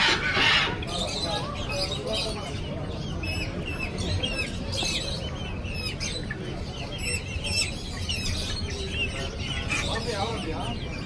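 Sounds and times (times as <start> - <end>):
chicks cheeping: 0.0 - 11.0.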